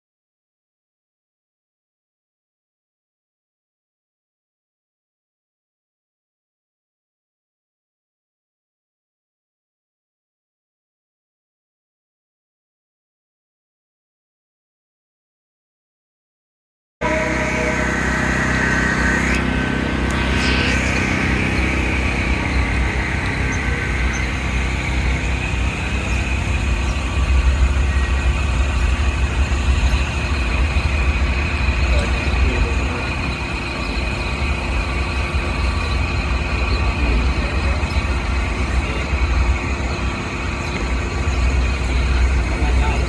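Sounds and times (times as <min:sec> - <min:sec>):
steady high-pitched tone: 0:17.0 - 0:43.0
train rumbling: 0:17.0 - 0:43.0.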